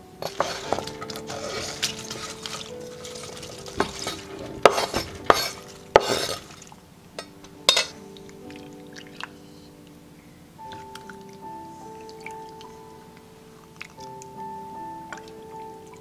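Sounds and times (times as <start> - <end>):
soft background music: 0.0 - 16.0
cabbage leaves rustling: 0.2 - 8.1.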